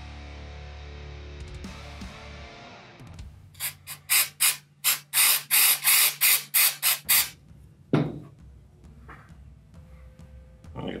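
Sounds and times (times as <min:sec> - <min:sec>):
aerosol can spraying: 0:03.6 - 0:07.4.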